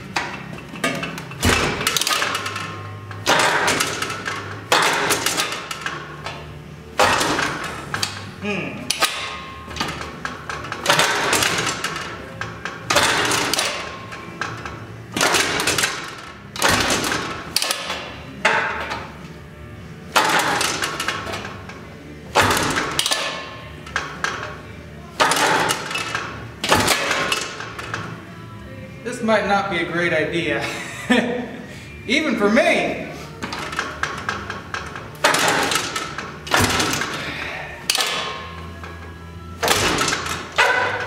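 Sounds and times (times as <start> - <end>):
engine being kick-started: 0.2 - 6.4, 8.9 - 18.1, 20.1 - 21.6, 22.3 - 24.5, 25.2 - 28.1, 33.4 - 39.0, 39.6 - 41.0.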